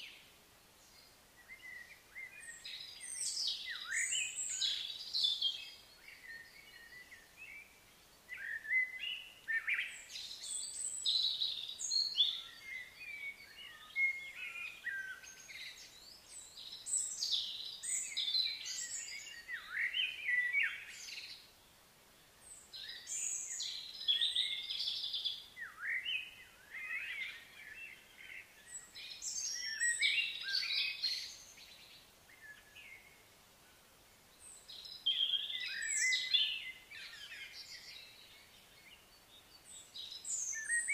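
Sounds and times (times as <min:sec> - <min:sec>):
songbirds singing: 0:00.0 - 0:40.9.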